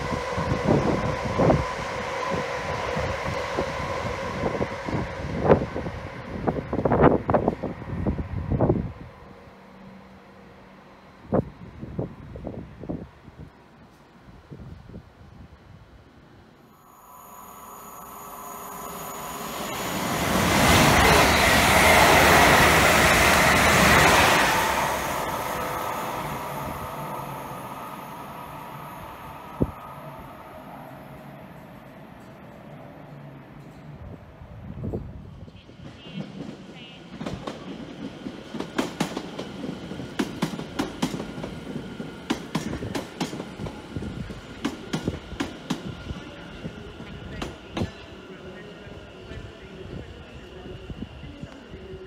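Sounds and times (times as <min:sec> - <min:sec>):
electric train passing: 0:00.0 - 0:52.0
faint high whine: 0:16.5 - 0:33.9.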